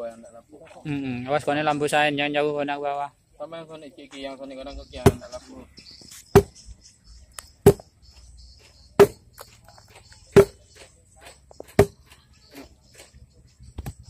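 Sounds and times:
insects chirping: 0.0s - 14.0s
hand tool striking with ring: 8.9s - 9.5s, 10.2s - 12.2s.

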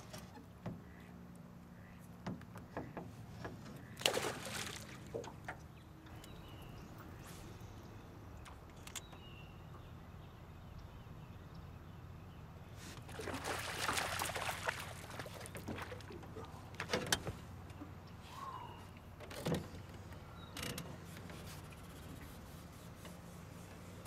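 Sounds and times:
handling knocks and clicks in boat: 0.0s - 7.2s, 8.4s - 9.9s, 14.6s - 24.0s.

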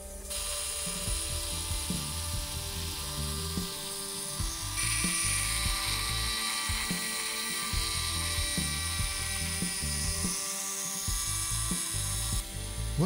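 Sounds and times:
background music: 0.0s - 13.0s
small motor drill whine: 0.0s - 13.0s.

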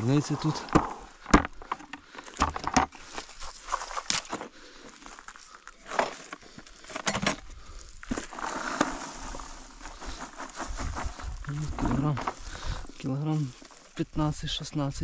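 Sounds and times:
rustling: 3.0s - 7.0s, 7.6s - 14.1s.

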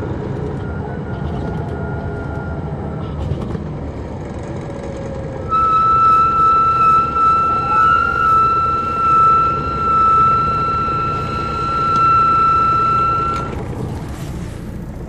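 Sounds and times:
diesel engine rumbling: 0.0s - 15.0s
high-pitched whine: 5.4s - 13.8s.

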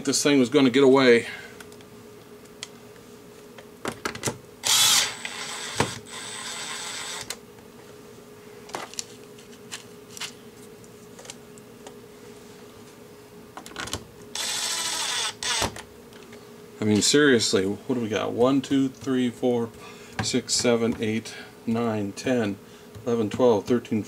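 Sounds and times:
cordless driver whining: 4.6s - 7.4s, 14.3s - 15.8s.

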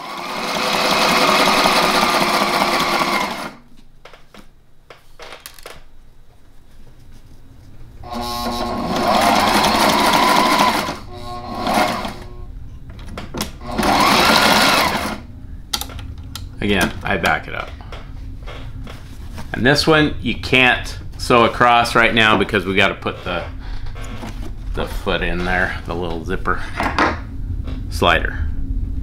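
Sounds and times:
electric sewing machine running: 0.0s - 3.6s, 8.0s - 12.5s, 13.5s - 15.3s.

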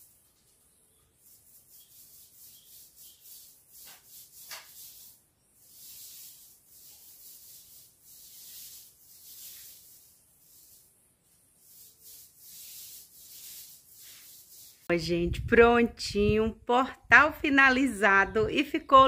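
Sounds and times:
paintbrush strokes on wood: 0.0s - 14.9s.

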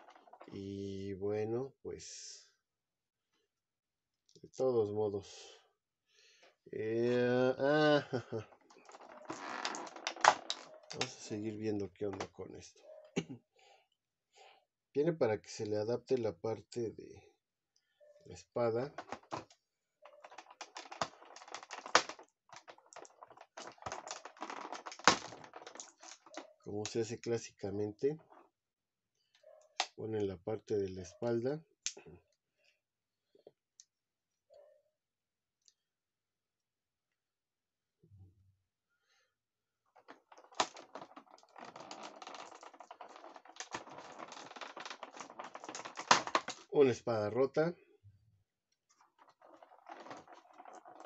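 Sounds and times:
plastic parts clicking: 8.8s - 11.2s, 20.2s - 27.0s, 40.0s - 46.7s
plastic packaging rustling: 20.2s - 26.4s, 40.0s - 46.7s, 49.0s - 51.0s.

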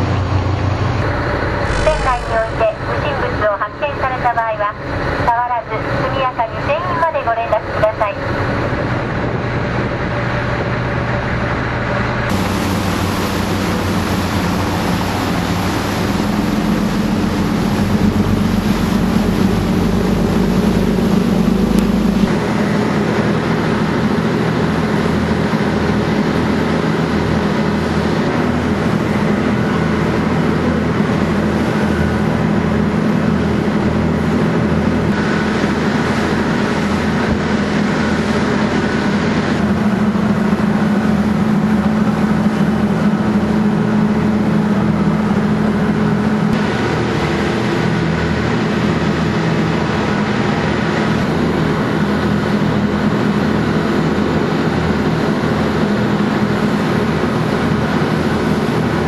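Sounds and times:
ferry engine drone: 0.0s - 59.0s
water rushing along hull: 0.0s - 59.0s.

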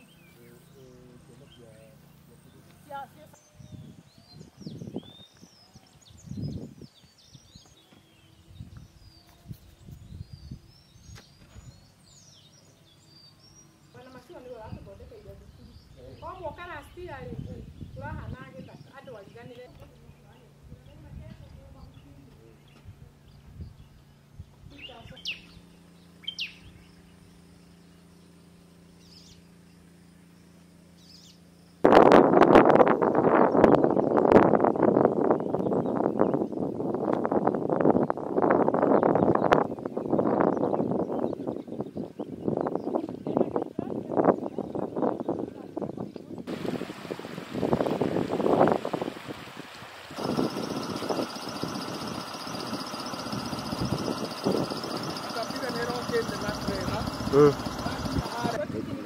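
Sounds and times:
steady low hum: 0.0s - 7.6s, 8.2s - 32.1s, 46.5s - 59.0s
small birds chirping: 0.0s - 31.8s, 35.1s - 59.0s
wind buffeting microphone: 2.9s - 12.3s, 14.6s - 25.6s, 31.9s - 59.0s
rising bird chirps: 24.8s - 31.8s, 47.6s - 58.6s.

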